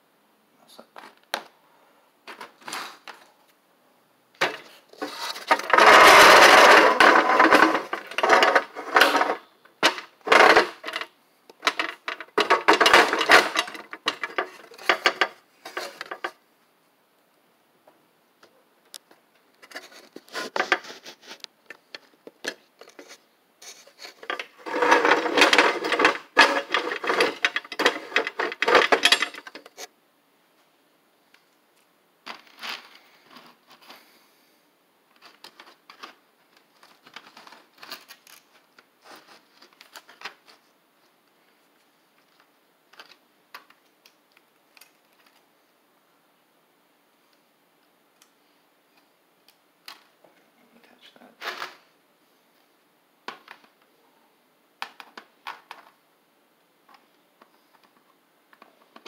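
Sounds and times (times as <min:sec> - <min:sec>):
parts clattering on workbench: 0:04.4 - 0:16.4, 0:24.0 - 0:29.8.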